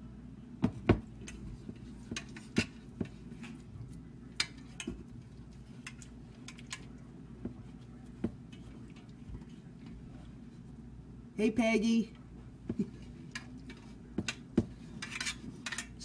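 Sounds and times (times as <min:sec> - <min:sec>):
hands shaping meat in pan: 0:00.0 - 0:11.0
faint low hum: 0:00.0 - 0:16.0.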